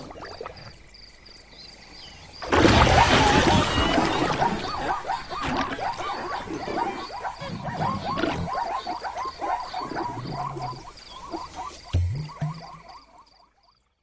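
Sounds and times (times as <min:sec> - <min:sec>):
zebras yelping calls: 0:02.9 - 0:12.8.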